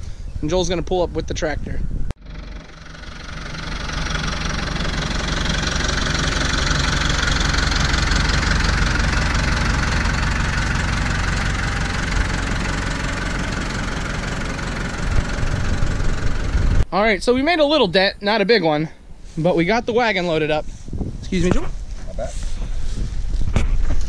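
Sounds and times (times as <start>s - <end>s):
tractor diesel engine running: 2.2s - 16.9s.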